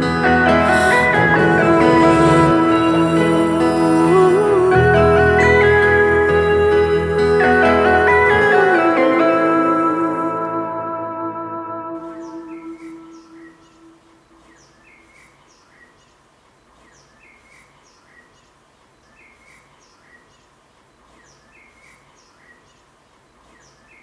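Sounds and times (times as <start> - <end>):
held musical note: 0.0 - 14.2
faint songbird chirps: 12.0 - 24.0.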